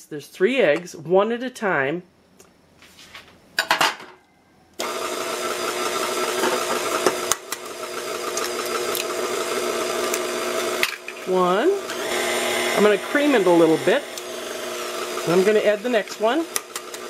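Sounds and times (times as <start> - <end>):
stand mixer motor whirring: 4.8 - 17.0.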